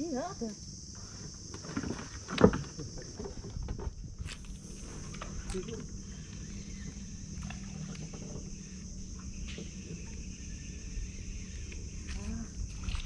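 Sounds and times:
fishing reel whirring: 0:04.4 - 0:09.3.

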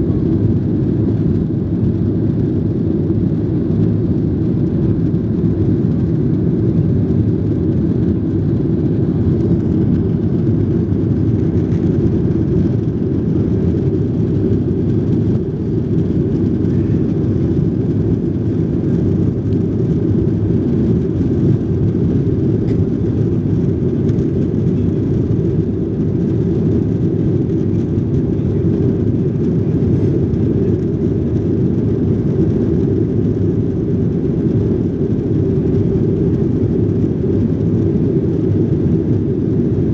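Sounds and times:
jet engines roaring: 0:00.0 - 0:39.9.

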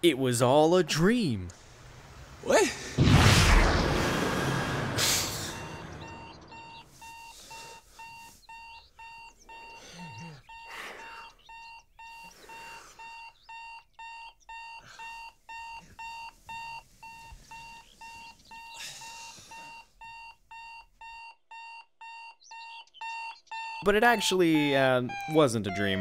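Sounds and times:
loud whooshing hit: 0:03.0 - 0:06.3
alarm clock two-tone beeps: 0:05.6 - 0:26.0.

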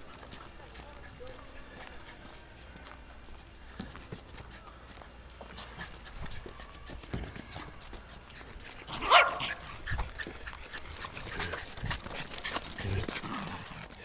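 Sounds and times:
dog barking: 0:08.9 - 0:09.6.

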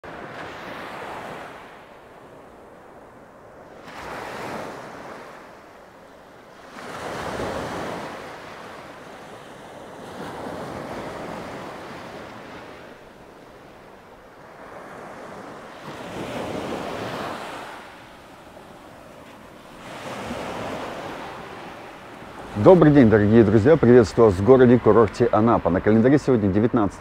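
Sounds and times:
sea surf breaking on shore: 0:00.0 - 0:27.0.

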